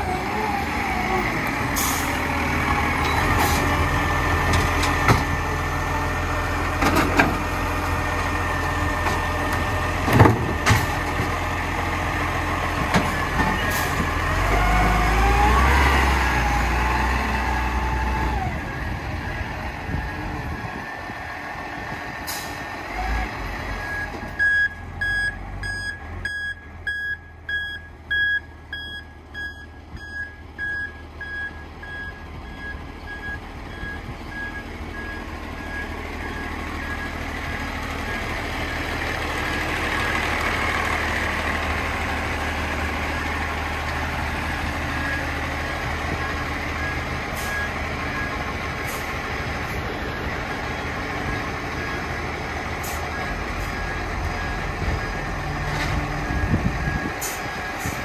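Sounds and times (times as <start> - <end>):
garbage truck engine under load: 0.0 - 26.8, 30.4 - 58.0
reversing beeper beeps: 23.8 - 37.6.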